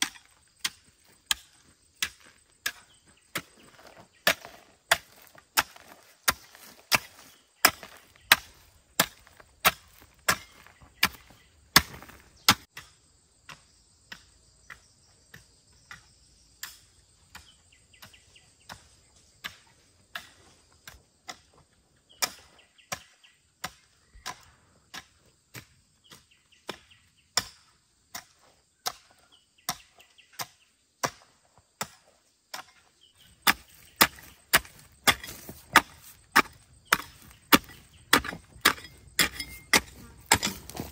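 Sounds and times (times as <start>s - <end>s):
blade chopping: 33.4s - 40.9s.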